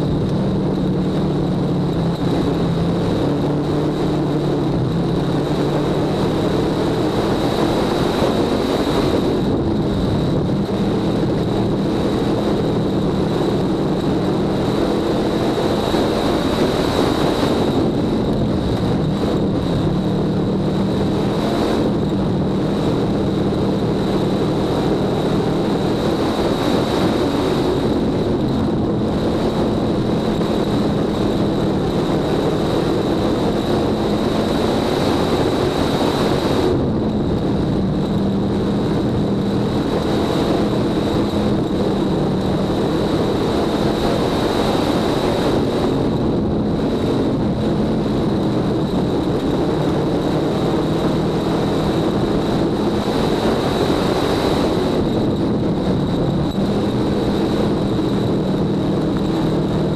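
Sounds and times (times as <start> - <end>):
high-pitched whine: 0.0 - 59.9
race car engine running hard: 0.0 - 59.9.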